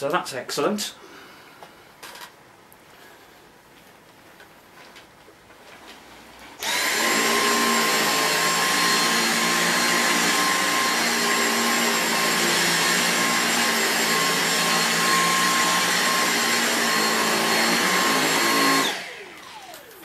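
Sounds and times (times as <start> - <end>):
vacuum cleaner motor whining: 6.6 - 20.0
vacuum head on carpet: 6.6 - 20.0.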